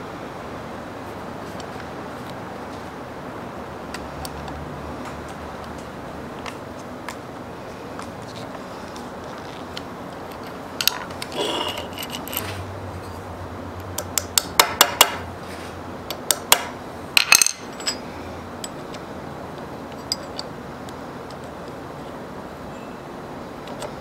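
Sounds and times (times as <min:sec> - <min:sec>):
metal parts clinking on steel bench: 0:10.3 - 0:13.2, 0:17.2 - 0:18.0, 0:19.9 - 0:20.5
metal scrape: 0:11.3 - 0:13.2.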